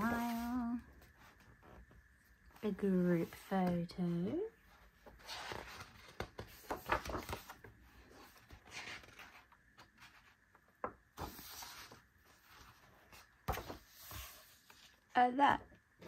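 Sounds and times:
book pages rustling: 3.2 - 15.1
pages tapping and clicking: 5.7 - 7.7.

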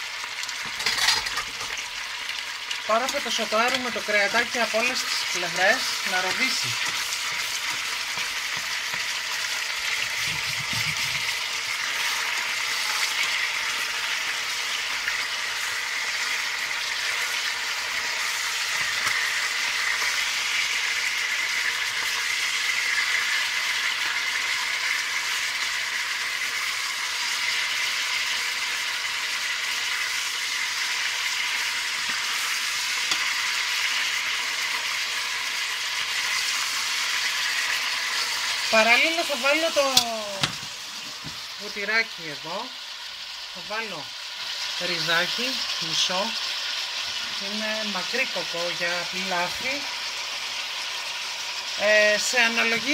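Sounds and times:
meat sizzling in hot oil: 0.0 - 52.9.

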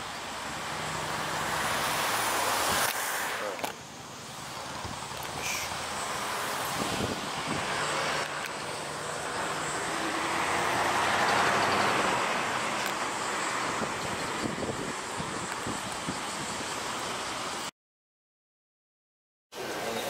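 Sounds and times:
vehicle passing close by: 0.4 - 15.4.

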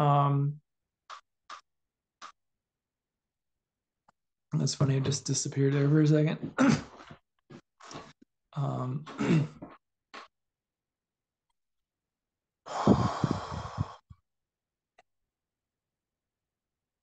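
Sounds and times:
man's wordless voiced sound: 0.0 - 0.6, 4.6 - 7.0, 8.6 - 9.6
man sighing: 12.7 - 14.0.

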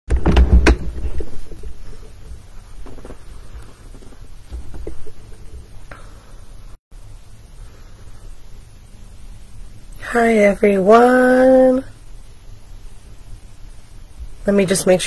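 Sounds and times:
sharp knocks: 0.1 - 1.5
microphone handling rumble: 0.1 - 6.0.

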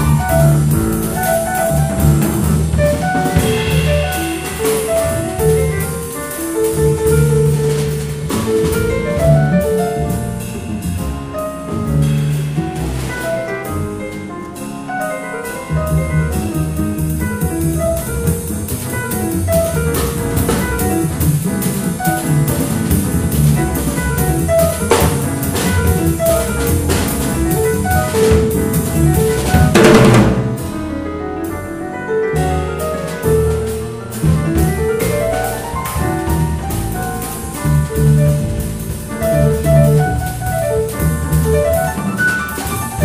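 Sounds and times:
steady cymbal beat: 0.0 - 14.8
grand piano: 0.0 - 43.0
walking double bass: 0.0 - 43.0
cymbal crashes: 3.4 - 6.2.

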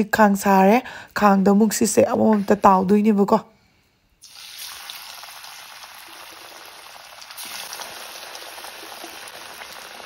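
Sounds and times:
food deep-frying in hot oil: 4.2 - 10.0.

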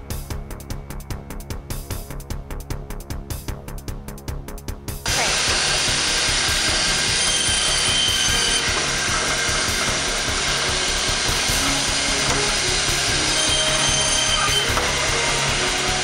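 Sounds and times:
band saw cutting meat: 5.1 - 16.0
high whine of saw: 5.1 - 16.0.

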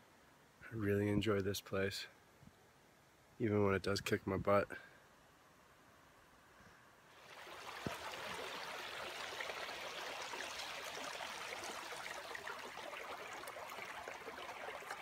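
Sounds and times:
stream running over rocks: 7.1 - 15.0.

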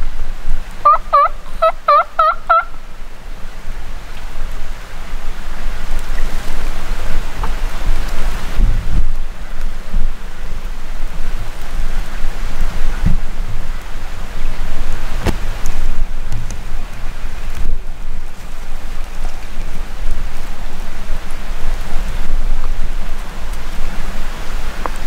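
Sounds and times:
steady rushing wind noise: 0.0 - 25.0
wild turkey yelping: 0.8 - 2.8.

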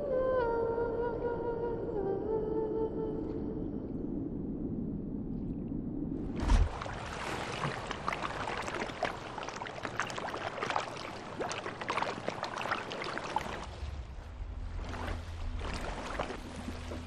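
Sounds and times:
low hum: 0.0 - 7.2, 11.0 - 17.0
water splashing and lapping: 6.2 - 17.0.

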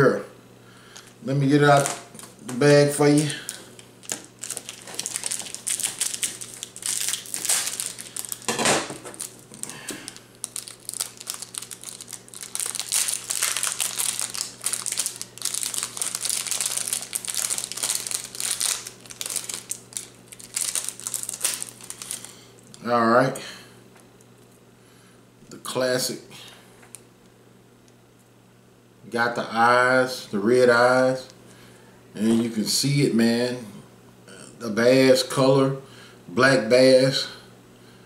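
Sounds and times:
bag crinkling: 1.0 - 22.8.

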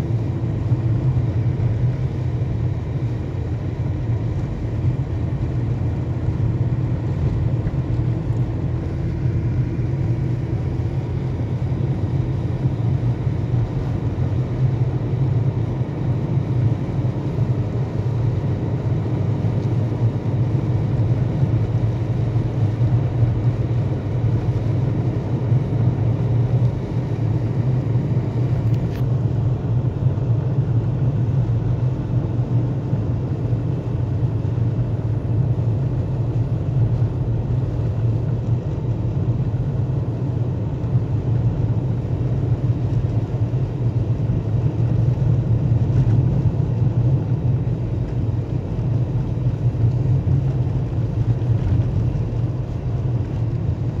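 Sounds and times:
car engine and road drone: 0.0 - 54.0.

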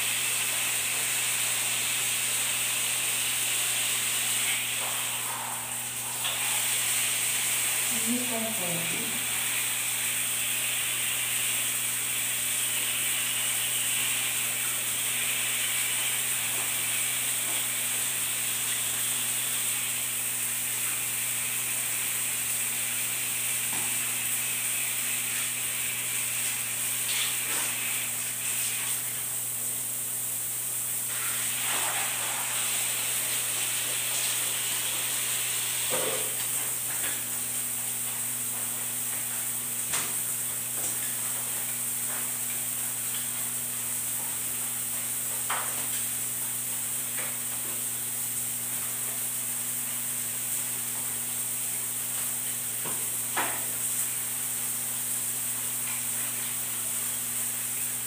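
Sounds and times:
bath scrubber rasping on skin: 31.1 - 36.6.

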